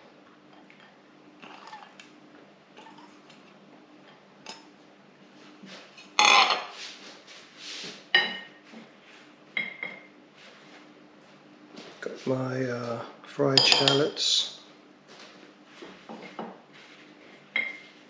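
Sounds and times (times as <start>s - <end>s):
steel bowl and utensils clinking: 13.6s - 14.1s.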